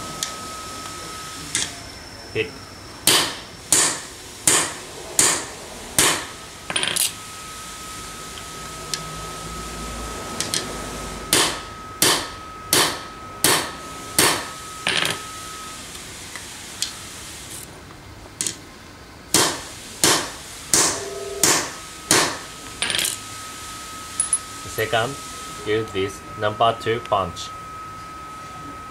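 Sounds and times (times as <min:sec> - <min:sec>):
hammer striking steel punch: 0:03.0 - 0:06.3, 0:11.3 - 0:14.5, 0:19.3 - 0:22.4.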